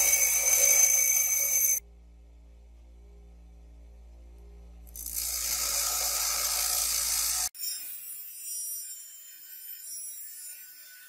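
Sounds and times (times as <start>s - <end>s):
bench grinder grinding steel: 0.0s - 1.8s, 4.9s - 11.0s
rotary tool disc cutting steel: 0.0s - 1.8s, 4.9s - 11.0s.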